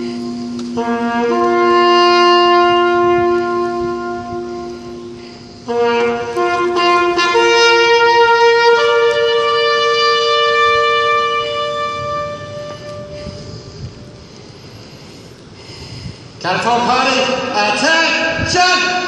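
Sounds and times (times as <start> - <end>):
bugle call: 0.0 - 13.7.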